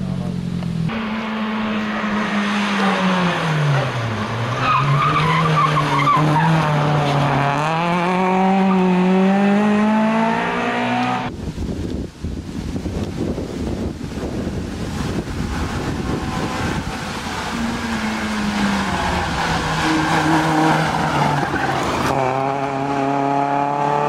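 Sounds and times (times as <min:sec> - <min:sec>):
rally car engine revving: 0:00.0 - 0:11.3, 0:14.2 - 0:24.0
wind on microphone: 0:11.2 - 0:20.7
tyres squealing: 0:16.1 - 0:22.1.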